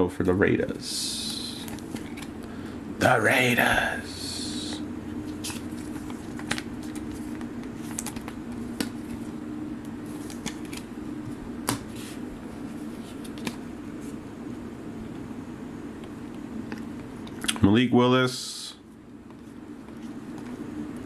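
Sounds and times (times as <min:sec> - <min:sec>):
steady low hum: 0:00.0 - 0:21.0
cards clicking and rustling: 0:01.1 - 0:02.5, 0:04.5 - 0:10.9, 0:11.6 - 0:12.2, 0:12.8 - 0:13.6.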